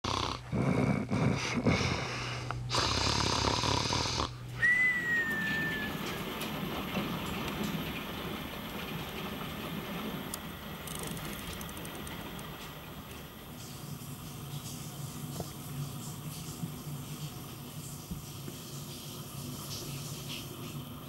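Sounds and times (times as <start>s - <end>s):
person snoring: 0.0s - 4.3s
steady hiss: 1.4s - 21.0s
short whistle-like tone: 4.6s - 6.0s.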